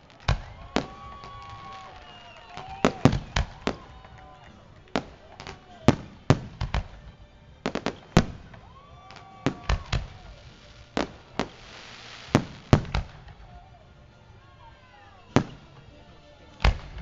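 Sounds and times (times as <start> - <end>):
firework shells bursting: 0.0 - 13.4
hissing crackle: 9.2 - 13.7.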